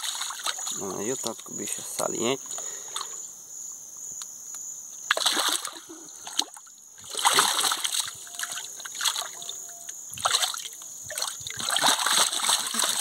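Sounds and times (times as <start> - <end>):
water splashing in canoe: 0.0 - 0.9, 5.1 - 13.0.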